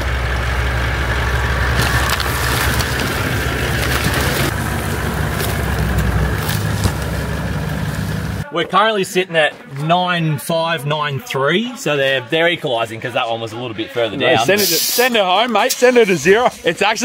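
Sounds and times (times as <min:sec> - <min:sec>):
truck engine running at low speed: 0:00.0 - 0:08.4
tyres crunching over wood: 0:01.3 - 0:08.4.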